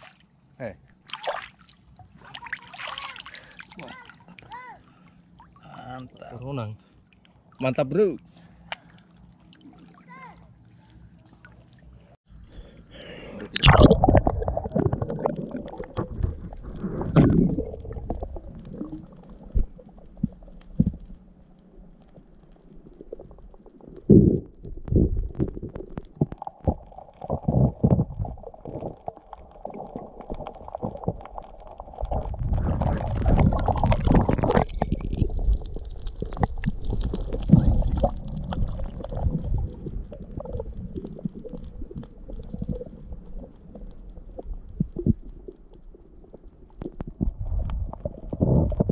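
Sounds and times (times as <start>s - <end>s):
underwater rumbling and gurgling: 13.5s - 48.9s
underwater knocks and bumps: 13.6s - 21.3s, 22.2s - 48.9s.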